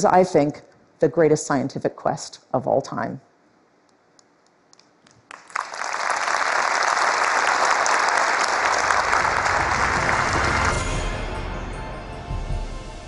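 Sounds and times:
large audience applauding: 0:05.2 - 0:11.1
low music: 0:08.6 - 0:13.0.

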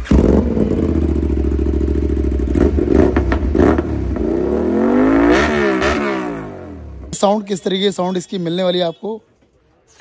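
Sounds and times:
motorcycle engine revving: 0:00.0 - 0:07.2.

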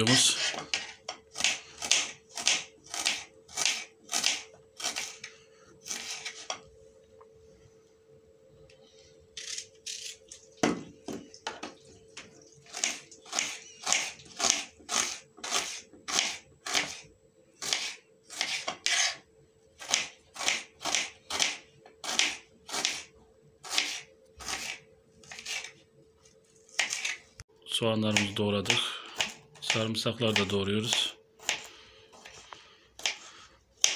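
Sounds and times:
knife chopping onion on wooden board: 0:00.4 - 0:05.2, 0:12.7 - 0:17.0, 0:17.6 - 0:19.2, 0:19.8 - 0:25.7, 0:26.7 - 0:27.2, 0:29.2 - 0:32.4, 0:33.0 - 0:33.9.

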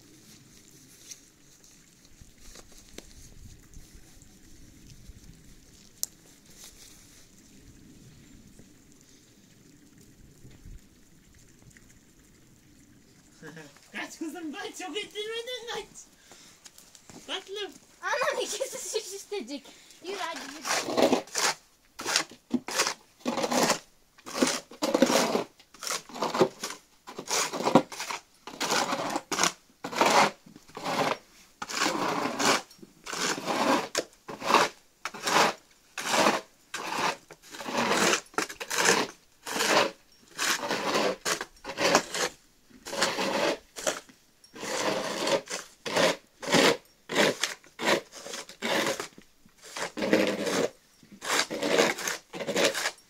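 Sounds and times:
plastic shovels scraping snow: 0:13.9 - 0:53.0.

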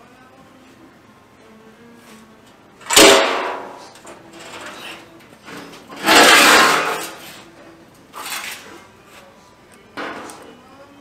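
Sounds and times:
loud metallic rattle: 0:02.8 - 0:04.8, 0:05.9 - 0:07.2
sheet metal scraping on concrete: 0:02.9 - 0:07.5, 0:08.2 - 0:08.8.

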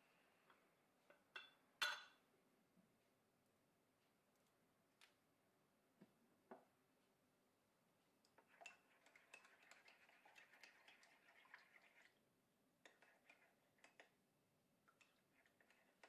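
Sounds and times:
spoon stirring in ceramic mug: 0:08.3 - 0:12.2, 0:12.8 - 0:14.2, 0:14.9 - 0:16.0.

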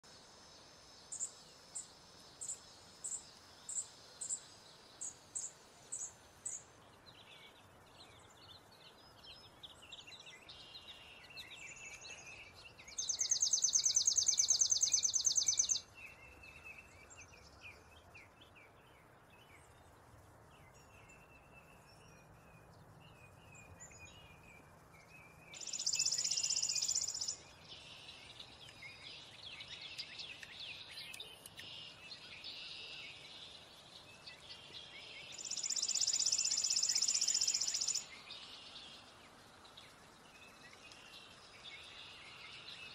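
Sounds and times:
soft lower birdsong: 0:00.0 - 0:42.9
sparrow chips and trills: 0:20.6 - 0:42.9.

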